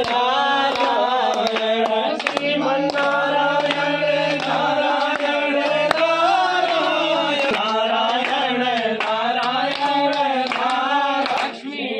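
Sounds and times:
devotional chanting: 0:00.0 - 0:11.9.

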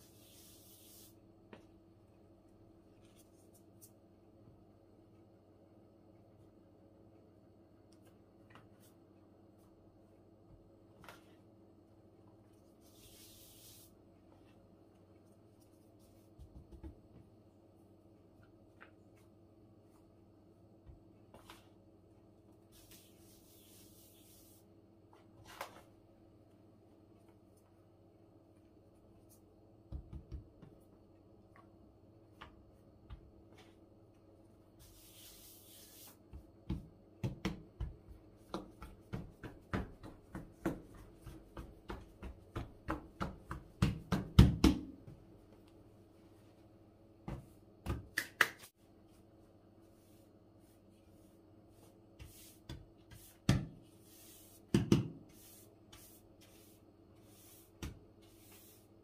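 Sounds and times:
hands slapping dough sheets: 0:36.0 - 0:45.2, 0:47.3 - 0:48.8, 0:52.2 - 0:56.6.

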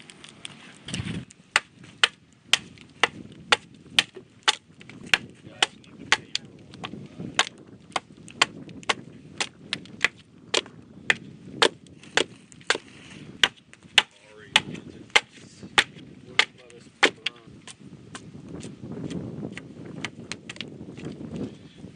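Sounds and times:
knife chopping wood: 0:01.5 - 0:20.7.

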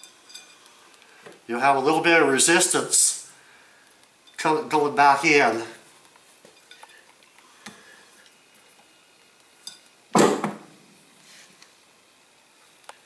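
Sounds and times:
loud knock on workbench: 0:10.2 - 0:10.7.

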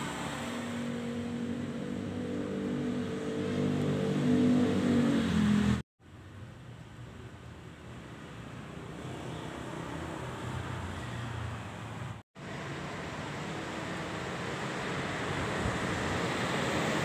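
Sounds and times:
vehicle engine humming: 0:00.0 - 0:17.0
background noise: 0:06.0 - 0:12.2.

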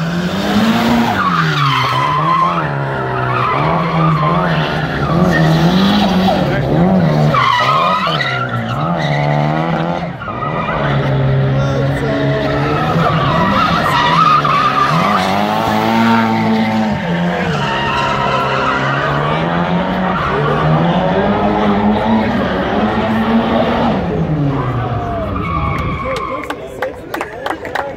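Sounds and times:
car engine revving: 0:00.0 - 0:26.5
tyres squealing: 0:12.4 - 0:21.2.

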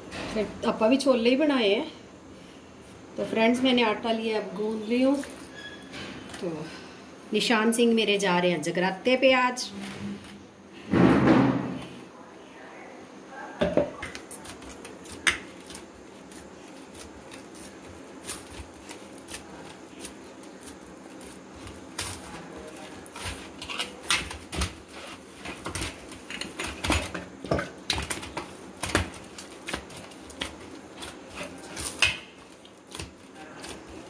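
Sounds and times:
hands kneading dough in metal plate: 0:14.1 - 0:34.0.

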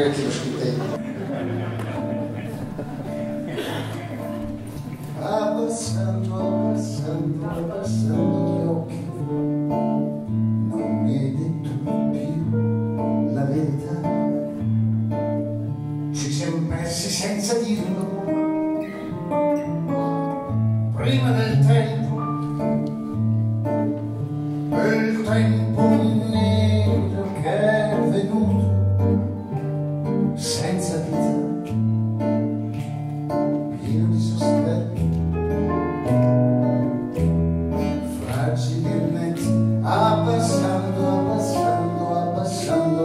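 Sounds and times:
strummed acoustic guitar: 0:00.0 - 0:43.0
man singing: 0:05.1 - 0:14.6, 0:16.1 - 0:18.8, 0:20.9 - 0:22.5, 0:24.7 - 0:29.3, 0:30.1 - 0:31.7, 0:33.7 - 0:35.2, 0:37.9 - 0:43.0.

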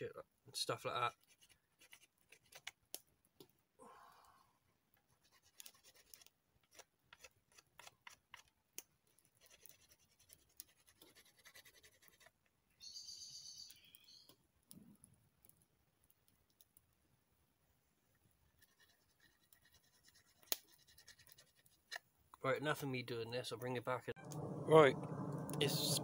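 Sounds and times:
hand tool scratching leather: 0:01.1 - 0:02.8, 0:05.1 - 0:08.5, 0:09.3 - 0:12.4, 0:18.5 - 0:22.0.

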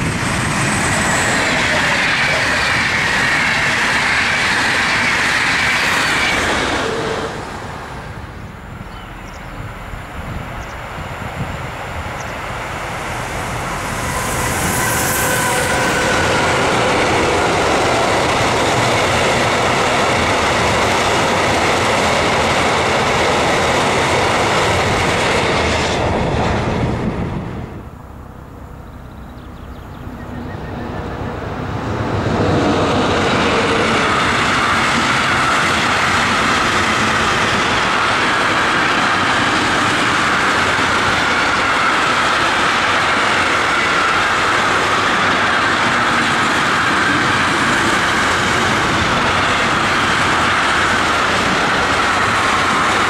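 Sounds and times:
train wheels clickety-clack: 0:00.0 - 0:07.5, 0:10.6 - 0:27.2, 0:31.8 - 0:53.0
freight train passing: 0:00.0 - 0:53.0.

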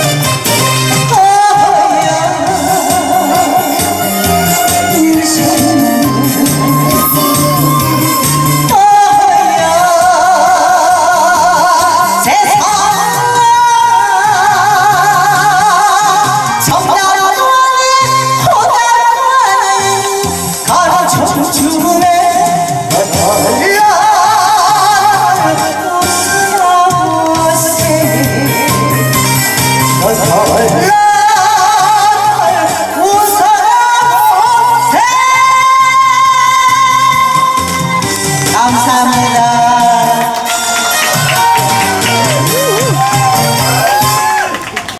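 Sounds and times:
karaoke backing track: 0:00.0 - 0:44.9
recorded music through speaker: 0:00.0 - 0:44.9
woman singing into a microphone: 0:00.9 - 0:41.0.

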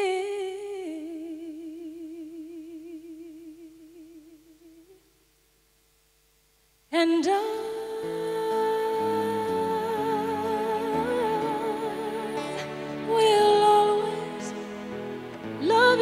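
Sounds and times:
woman singing with vibrato: 0:00.0 - 0:05.0, 0:06.9 - 0:16.0
song with accompaniment: 0:08.3 - 0:16.0.

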